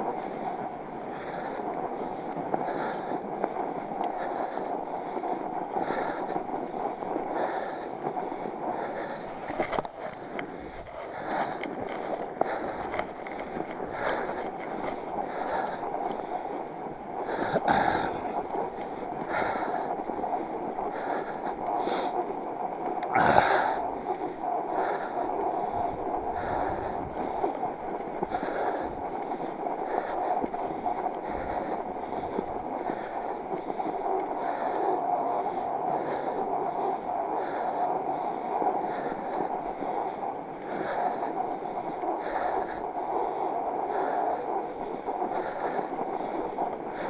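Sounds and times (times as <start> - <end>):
bike tires rolling over snow: 0.0 - 47.0
rider breathing hard: 0.0 - 47.0
sharp bike clicks: 9.2 - 20.1.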